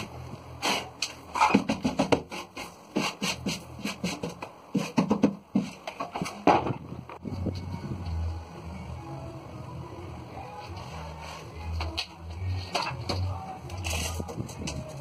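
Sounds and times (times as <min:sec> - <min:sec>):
hand rubbing drywall: 0:00.6 - 0:05.8.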